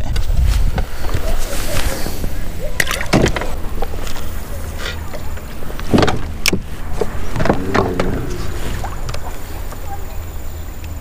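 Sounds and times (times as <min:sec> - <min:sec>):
steady low rumble: 0:03.6 - 0:10.5.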